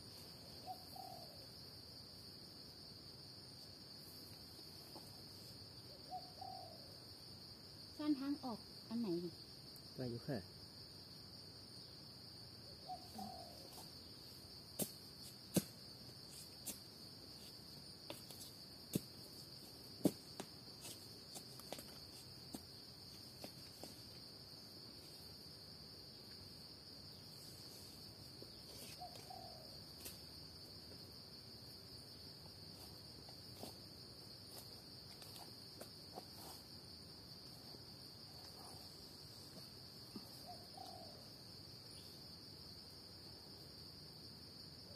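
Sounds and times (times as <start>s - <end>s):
insects droning: 0.0s - 44.9s.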